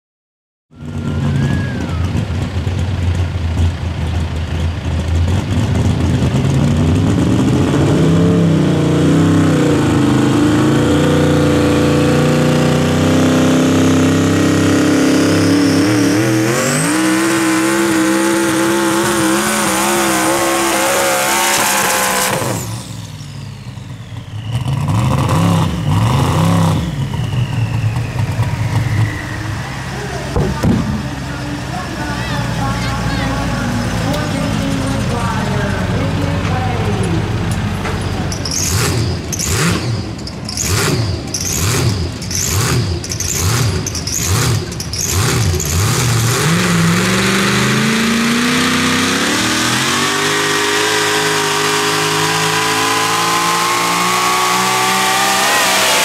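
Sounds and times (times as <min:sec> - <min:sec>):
high whistle: 0:00.8 - 0:02.2, 0:22.1 - 0:29.8
engine running at full throttle: 0:00.8 - 0:56.0.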